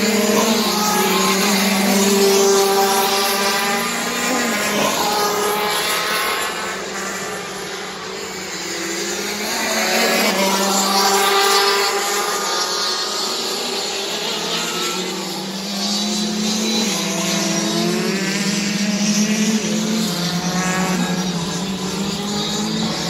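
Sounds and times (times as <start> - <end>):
racing kart engines passing: 0.0 - 23.0.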